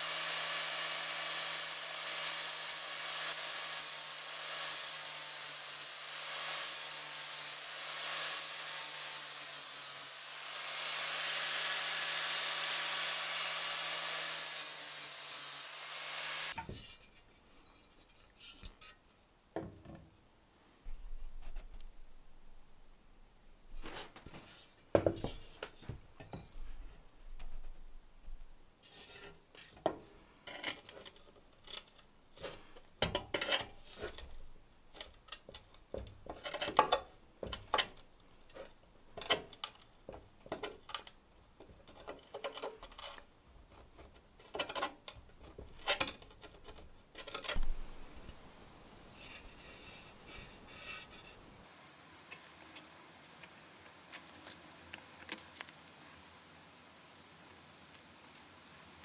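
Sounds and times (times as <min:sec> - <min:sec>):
soft metal scraping: 0:16.5 - 0:19.2, 0:28.8 - 0:32.8, 0:46.6 - 0:51.6.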